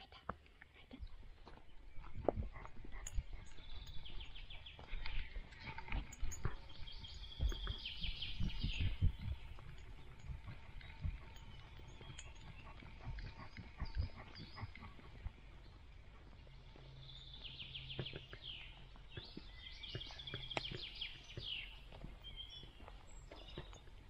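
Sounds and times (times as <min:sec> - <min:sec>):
songbird singing trills: 0:01.1 - 0:24.0
soft footfalls on path: 0:04.2 - 0:11.8, 0:15.2 - 0:24.0.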